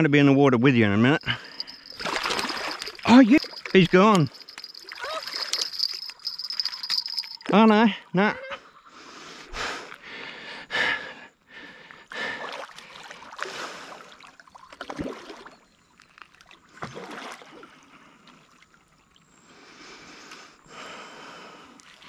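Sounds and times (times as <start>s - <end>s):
man breathing heavily: 1.2s - 2.0s, 8.9s - 12.6s, 19.6s - 21.8s
water splashing: 1.2s - 7.6s.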